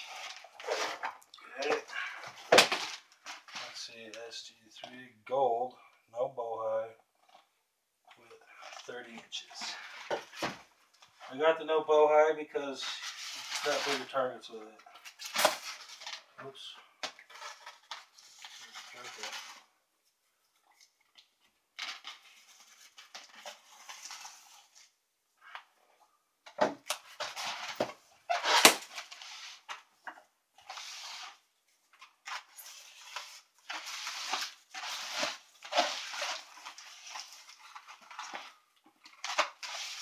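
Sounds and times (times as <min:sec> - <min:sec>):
knife cutting tape and cardboard: 0:26.9 - 0:29.6.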